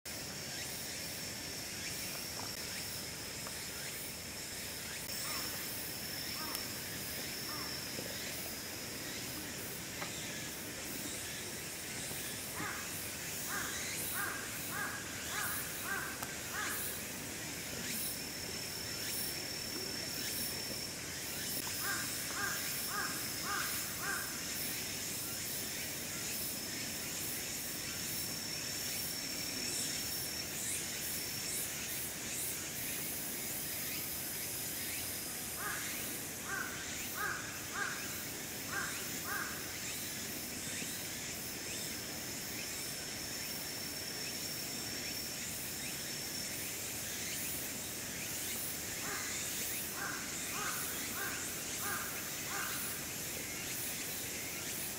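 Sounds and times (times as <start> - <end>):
outdoor background hiss: 0.1 - 54.9
thin high continuous tone: 0.1 - 54.9
crow cawing: 12.6 - 12.9, 13.5 - 16.9, 21.8 - 24.4, 35.6 - 38.1, 38.7 - 39.6, 50.0 - 52.9.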